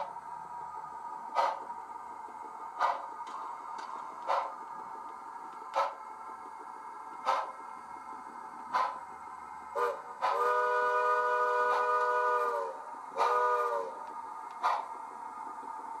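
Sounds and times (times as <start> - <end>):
steam exhaust chuffs: 0.0 - 16.0
multi-note steam whistle: 9.7 - 14.8.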